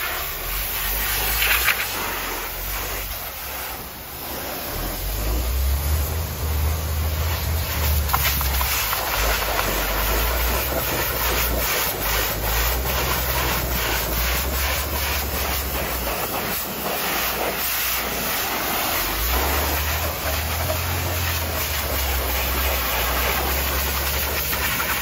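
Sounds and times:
pressure washer jet spattering: 0.0s - 25.0s.

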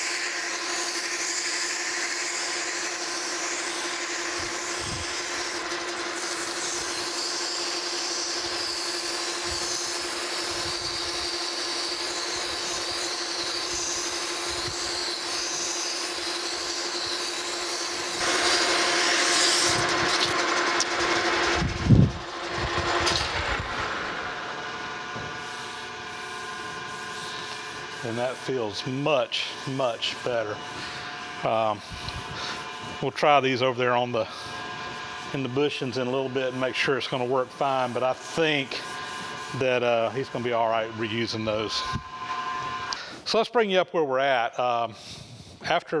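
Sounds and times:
lathe machine hum: 0.0s - 43.3s
abrasive cloth rubbing on metal: 25.0s - 42.9s.

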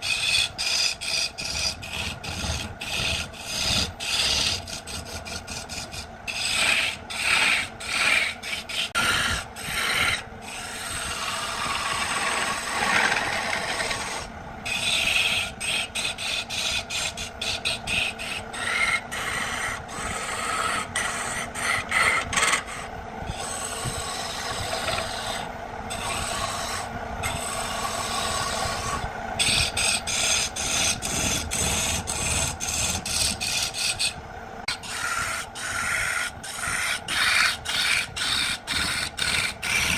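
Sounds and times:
chisel scraping wood on lathe: 0.0s - 39.9s.

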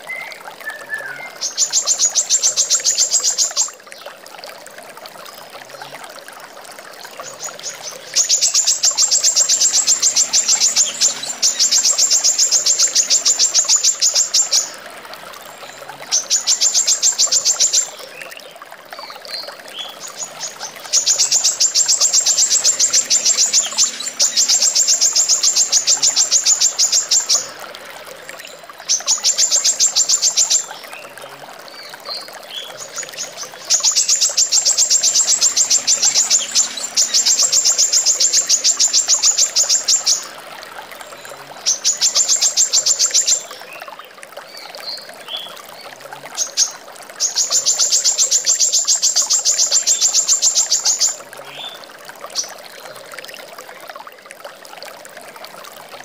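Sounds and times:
running water: 0.0s - 56.0s
bird singing fast trills: 19.7s - 27.5s.

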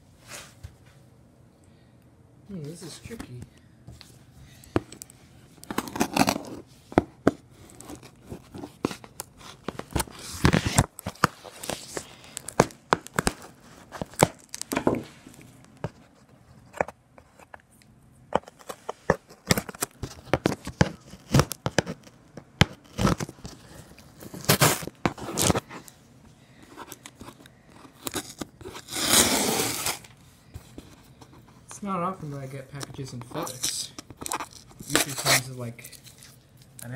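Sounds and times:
tape tearing rip: 5.7s - 6.6s, 22.7s - 23.4s, 24.2s - 25.6s, 28.0s - 30.1s, 34.2s - 36.3s
hands scratching cardboard box: 27.3s - 30.1s.

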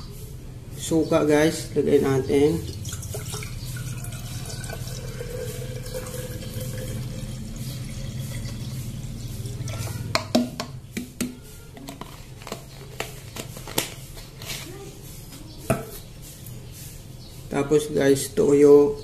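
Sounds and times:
liquid pouring into glass jar: 2.7s - 9.9s.

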